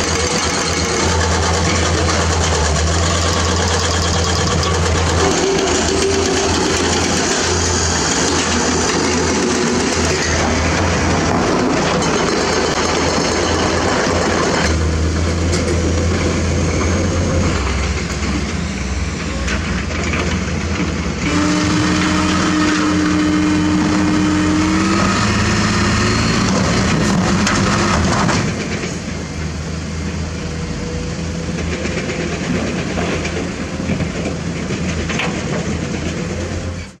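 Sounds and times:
diesel truck engine running: 0.0 - 31.6
hydraulic hoist whine: 0.0 - 32.0.

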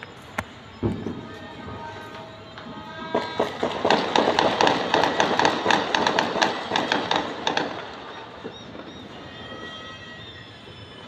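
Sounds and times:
firecracker pops: 0.3 - 1.4, 2.1 - 9.0.

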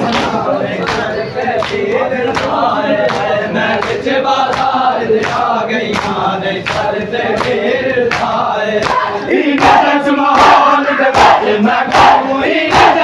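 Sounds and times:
crowd chanting together: 0.0 - 13.0
chest-beating slaps: 3.2 - 13.0.

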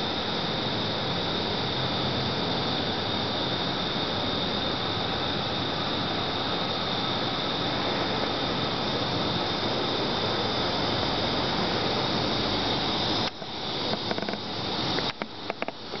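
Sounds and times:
rushing air with high hiss: 0.0 - 16.0
scattered clicks and knocks: 13.3 - 16.0.

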